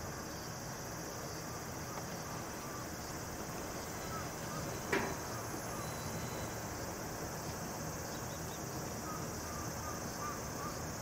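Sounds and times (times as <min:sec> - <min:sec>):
steady high hiss: 0:00.0 - 0:11.0
diesel railcars idling: 0:01.5 - 0:10.2.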